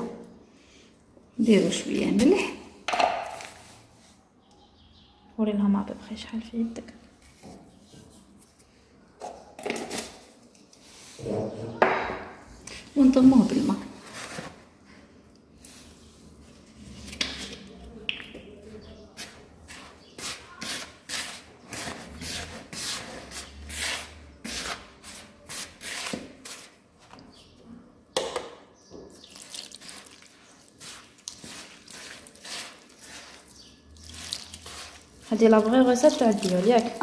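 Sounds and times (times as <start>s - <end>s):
hand scraping dry flour in bowl: 19.0s - 26.8s, 29.2s - 37.0s.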